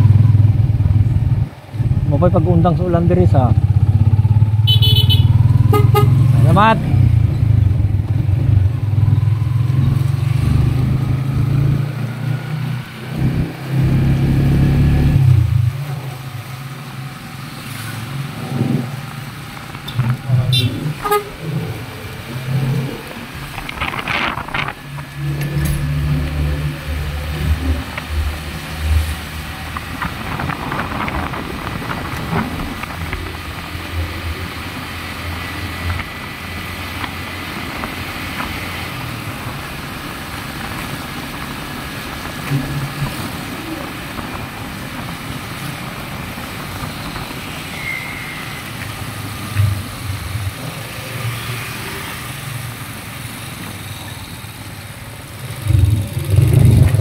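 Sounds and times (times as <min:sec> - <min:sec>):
road and wind hiss: 0:00.0 - 0:57.0
motorcycle engine running: 0:55.1 - 0:57.0.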